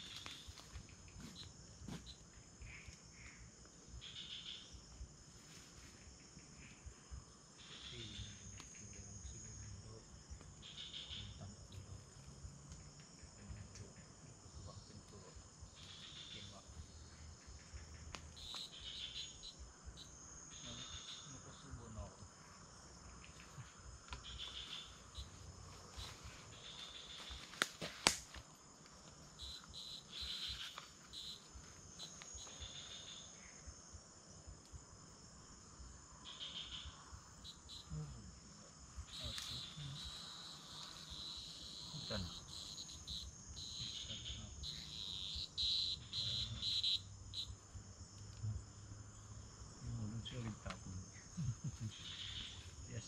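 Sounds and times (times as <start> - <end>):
insect chirping call: 0.0 - 53.0
insects buzzing: 0.0 - 53.0
sharp snap: 27.6 - 28.4.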